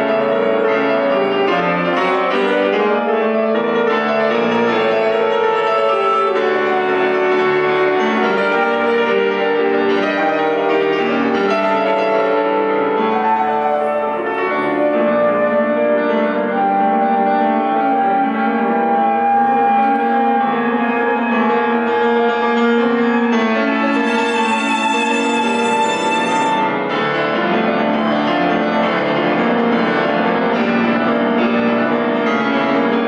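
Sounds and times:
piano: 0:00.0 - 0:33.0
saxophone: 0:03.8 - 0:27.4.

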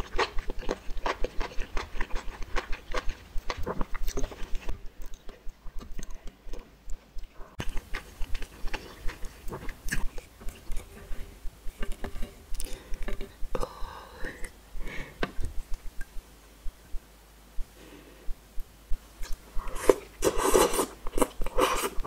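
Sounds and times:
chewing noodles: 0:00.0 - 0:13.4.

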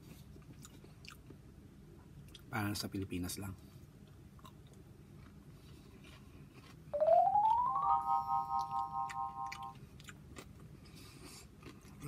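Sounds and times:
rising run of notes and chord: 0:07.0 - 0:09.8.

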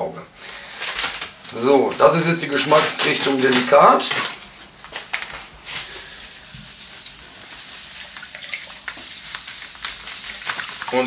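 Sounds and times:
water running into a metal pan: 0:05.6 - 0:11.0.

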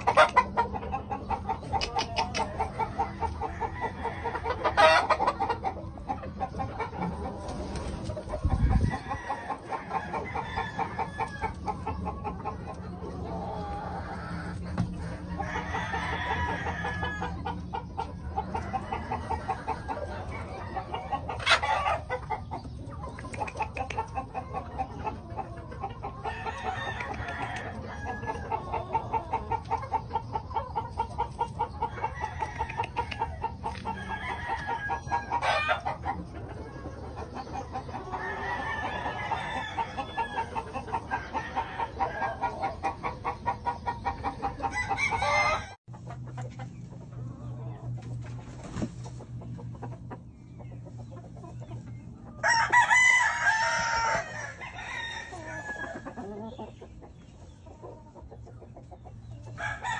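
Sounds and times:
chickens clucking: 0:00.0 - 0:59.9
rooster crowing: 0:09.0 - 0:11.5, 0:15.4 - 0:17.4, 0:38.2 - 0:40.5, 0:44.7 - 0:45.8, 0:52.4 - 0:56.1, 0:59.6 - 0:59.9.

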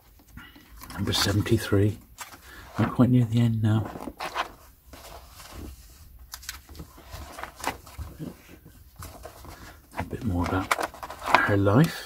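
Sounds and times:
paper rustling: 0:03.7 - 0:12.0.

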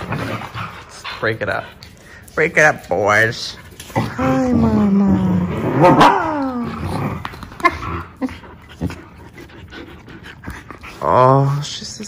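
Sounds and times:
dogs scuffling: 0:00.0 - 0:05.0
dog whining: 0:03.9 - 0:09.3.

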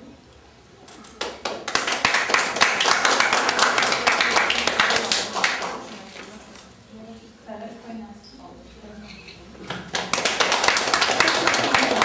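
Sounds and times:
audience applause: 0:01.2 - 0:05.9, 0:09.9 - 0:12.0.

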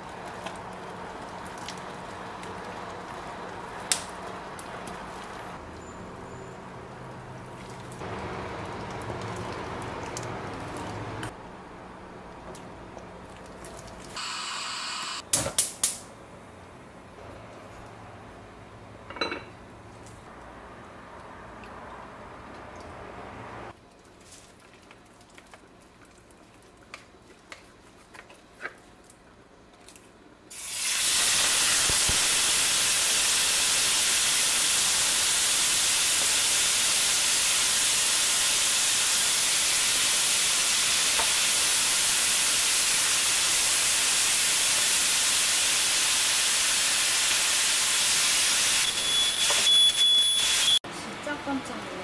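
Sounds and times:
loud steady hiss: 0:30.5 - 0:50.8
smoke alarm high tone: 0:48.7 - 0:50.8.

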